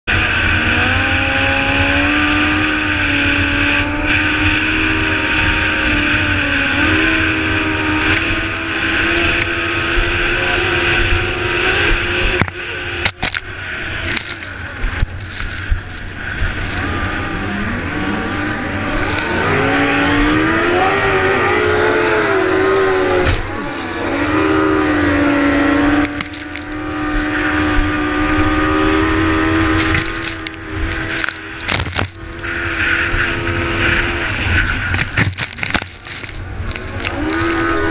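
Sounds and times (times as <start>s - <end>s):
boat engine running hard: 0.2s - 37.9s
wind and spray on microphone: 3.9s - 20.9s, 25.9s - 37.9s.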